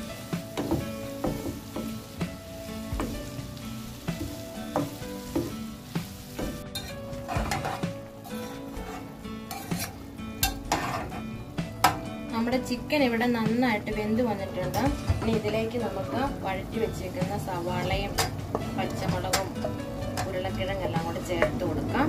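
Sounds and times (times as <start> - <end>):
spatula scraping frying pan: 0.0 - 12.0
food sizzling in oil: 0.0 - 22.0
metal ladle scraping steel pot: 6.6 - 11.4.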